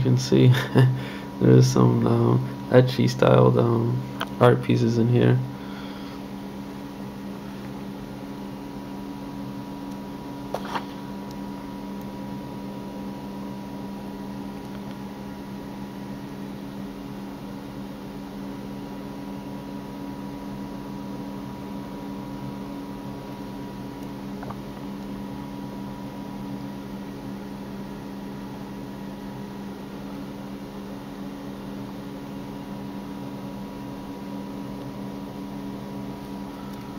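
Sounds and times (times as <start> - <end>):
electrical hum: 0.0 - 36.9.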